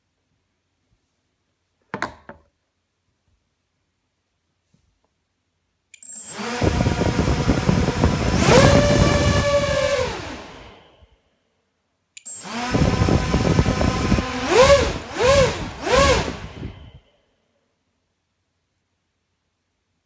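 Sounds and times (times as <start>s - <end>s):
quadcopter motors whining: 6.0s - 10.8s, 12.2s - 17.0s.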